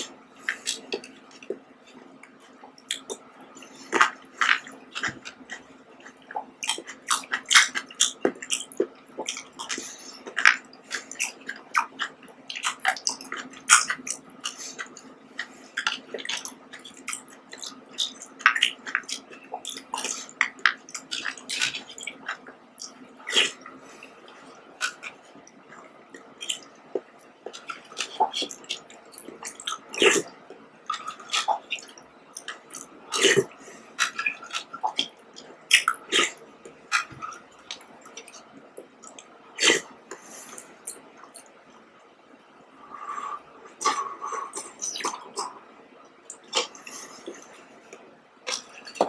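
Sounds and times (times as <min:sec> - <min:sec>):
chewing: 0:00.0 - 0:41.6, 0:46.2 - 0:49.0
jelly squishing and sucking: 0:02.9 - 0:41.6.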